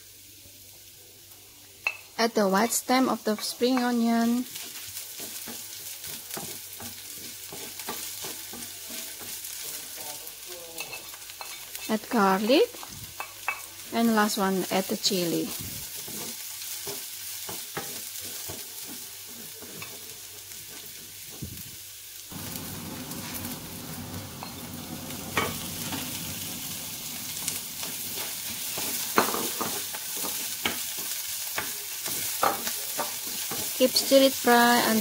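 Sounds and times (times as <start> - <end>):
food sizzling in oil: 0.0 - 35.0
wooden spatula scraping a pan: 4.4 - 9.8, 15.6 - 21.6.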